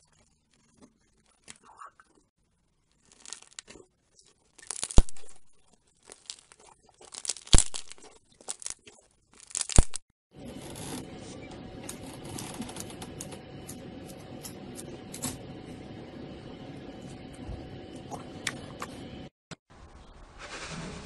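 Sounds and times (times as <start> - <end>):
slime crackling and tearing: 4.6 - 5.4, 6.0 - 10.0.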